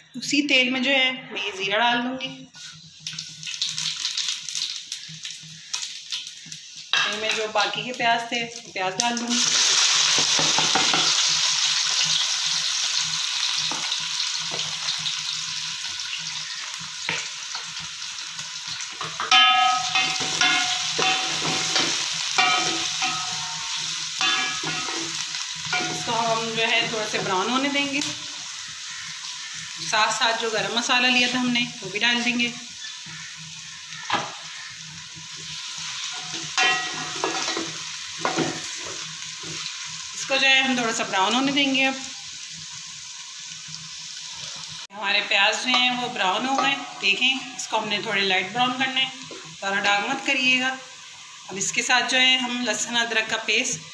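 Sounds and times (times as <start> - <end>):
onions sizzling in oil: 2.5 - 53.9
metal spatula scraping pot: 19.2 - 27.4, 36.0 - 39.0.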